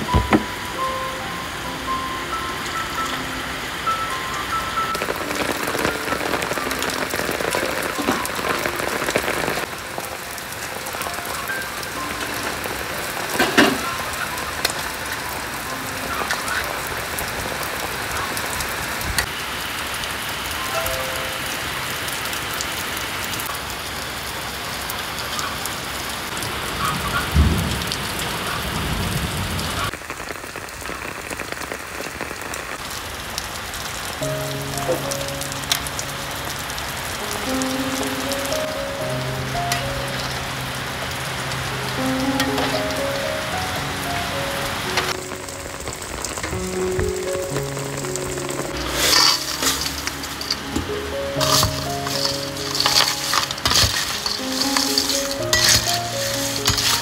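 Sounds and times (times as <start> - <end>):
water boiling in wok: 48.4 - 57.0.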